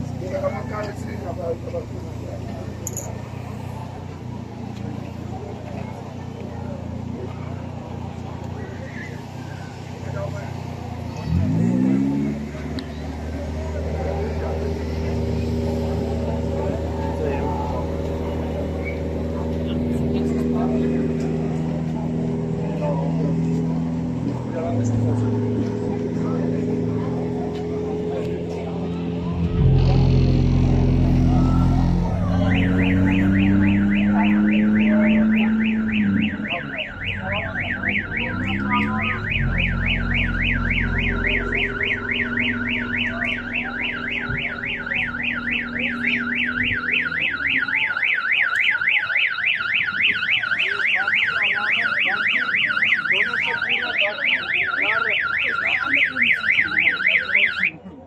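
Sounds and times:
car engine idling and revving: 0.0s - 58.0s
electronic alarm siren warbling: 30.8s - 57.7s.

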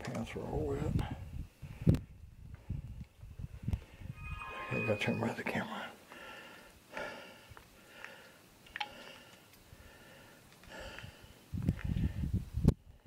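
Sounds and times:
person breathing through nose: 6.0s - 12.4s.

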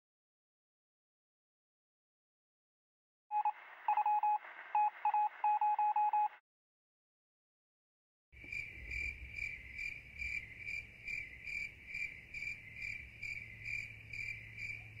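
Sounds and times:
cricket chirping: 8.4s - 15.0s.

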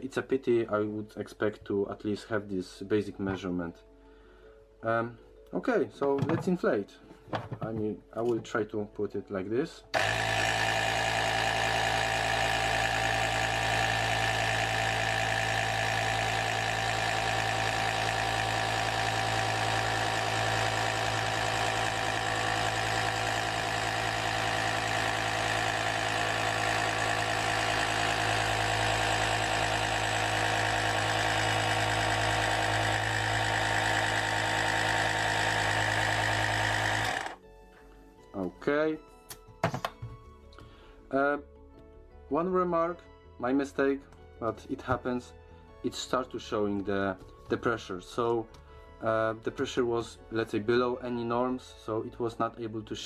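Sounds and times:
electric air compressor humming: 10.0s - 37.4s.

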